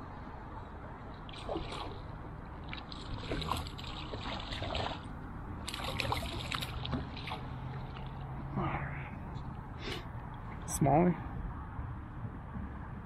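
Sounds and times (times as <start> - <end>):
fish splashing at water surface: 1.3 - 8.4.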